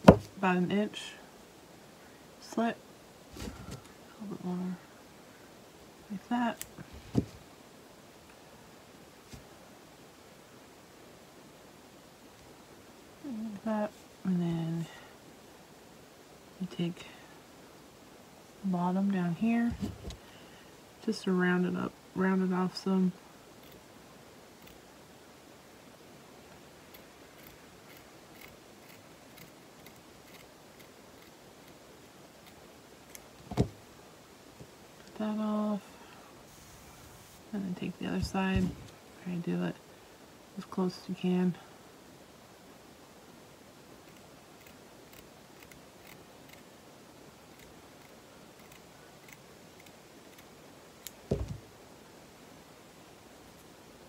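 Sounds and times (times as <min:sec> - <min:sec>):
dull thump: 0:00.0 - 0:00.4, 0:33.4 - 0:33.8, 0:51.3 - 0:51.7.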